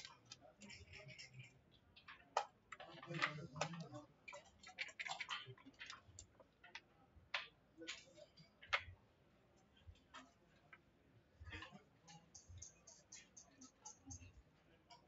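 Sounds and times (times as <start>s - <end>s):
checkers clacking on wooden board: 0.0s - 9.0s.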